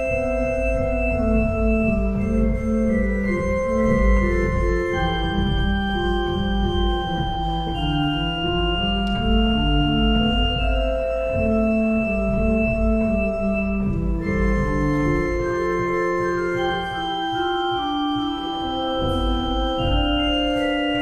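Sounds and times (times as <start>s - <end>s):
pipe organ playing counterpoint: 0.0s - 21.0s.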